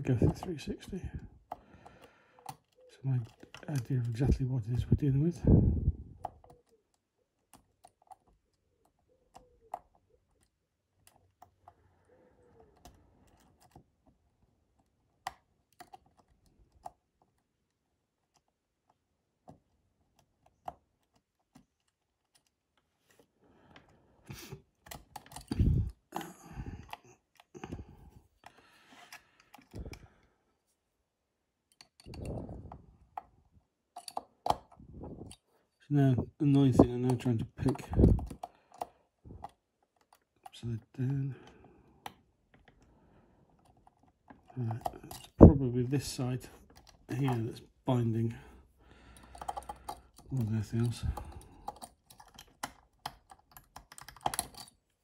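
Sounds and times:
lock pick clicking and scraping: 2.4s - 4.3s, 6.1s - 11.8s, 12.4s - 30.2s, 31.6s - 35.8s, 36.4s - 47.6s, 48.6s - 55.0s.

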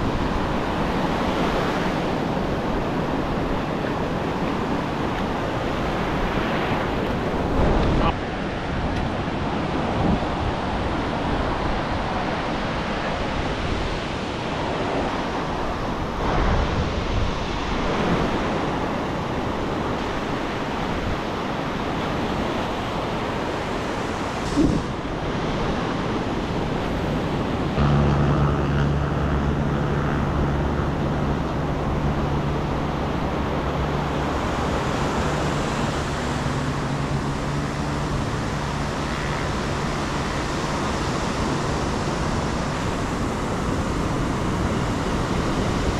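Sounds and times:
ocean surf washing up beach: 0.0s - 45.9s
wind on microphone: 0.0s - 45.9s
low steady hum: 24.4s - 45.9s.

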